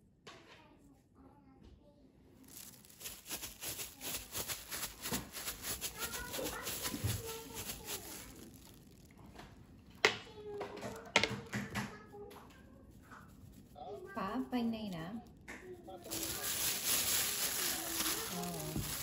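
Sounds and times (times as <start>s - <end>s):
plastic glove crinkling: 2.4s - 9.5s, 13.3s - 19.0s.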